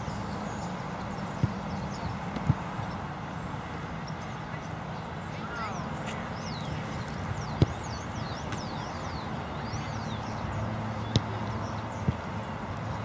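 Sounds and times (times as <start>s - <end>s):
birds chirping: 0.0s - 13.0s
ball kicked with thump: 1.4s - 1.7s, 7.6s - 7.8s, 11.1s - 11.4s.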